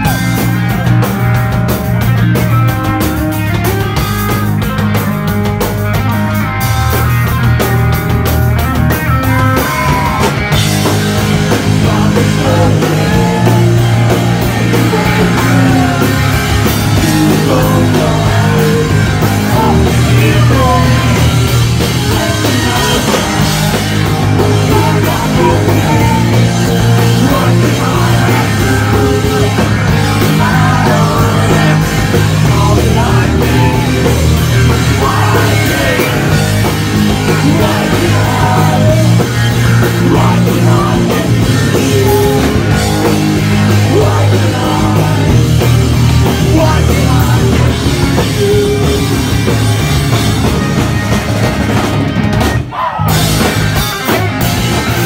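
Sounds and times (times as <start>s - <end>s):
drum kit: 0.0s - 55.0s
guitar: 0.0s - 55.0s
live rock band: 0.0s - 55.0s
person singing: 11.2s - 49.3s.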